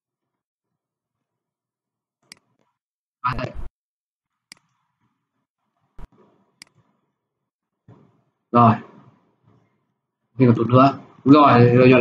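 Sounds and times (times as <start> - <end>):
man's voice: 8.6 - 8.9, 10.4 - 12.0.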